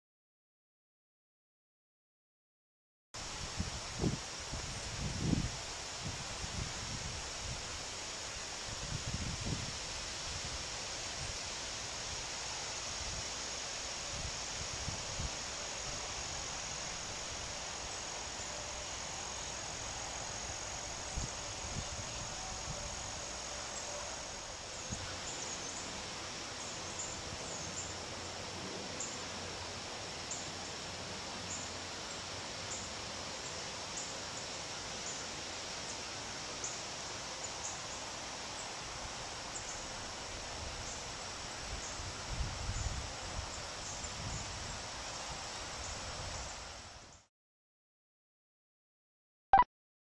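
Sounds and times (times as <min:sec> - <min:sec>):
insects droning: 0:03.2 - 0:47.2
wind bumps on microphone: 0:03.4 - 0:07.6.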